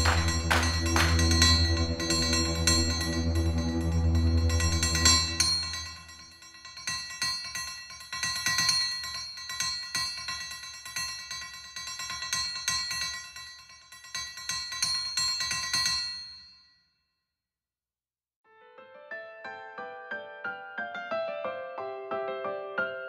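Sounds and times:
hammer tapping on steel anvil: 0.0 - 2.7.

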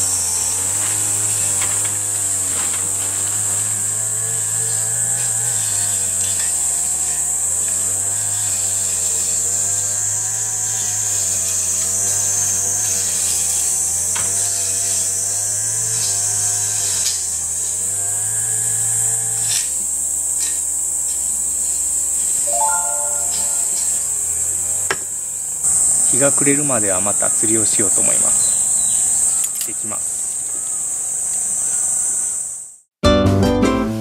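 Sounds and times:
small engine running: 0.0 - 22.4
high-pitched drone: 22.5 - 23.9.

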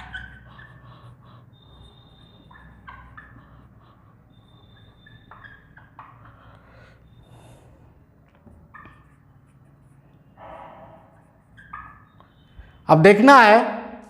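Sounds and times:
marker squeaking on whiteboard: 0.0 - 12.8.

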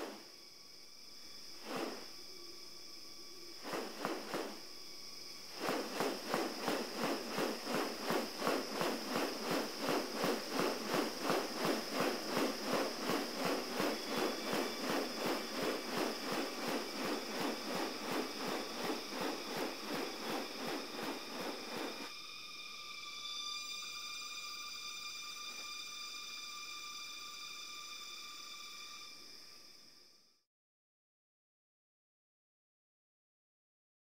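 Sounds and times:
high insect drone: 0.0 - 30.4
bird wing snapping beats: 1.6 - 2.1, 3.6 - 4.6, 5.5 - 22.1.

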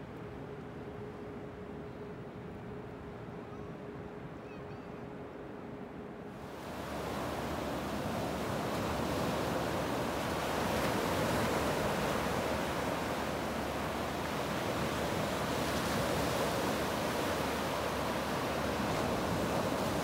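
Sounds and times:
small waves breaking on sand: 6.4 - 20.0.

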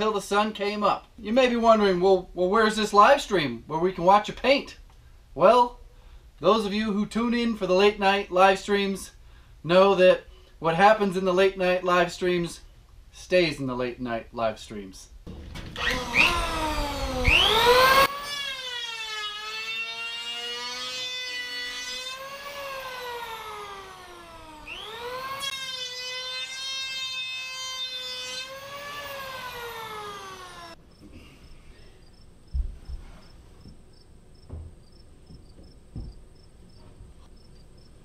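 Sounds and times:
electric hand planer whine: 15.7 - 30.8.

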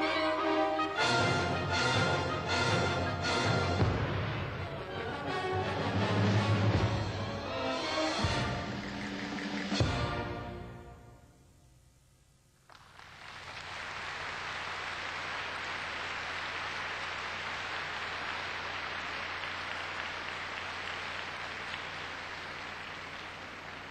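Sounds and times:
audience applauding: 12.7 - 23.9.

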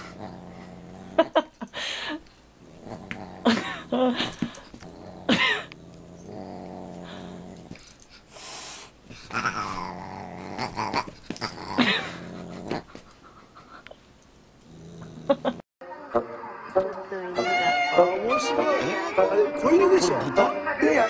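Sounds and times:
dog growling in play: 0.0 - 1.7, 2.3 - 8.1, 9.1 - 13.2, 14.6 - 15.6.

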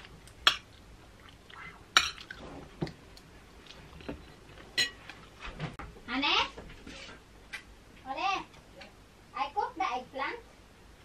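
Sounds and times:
cutlery clinking on a plate: 4.0 - 5.0.

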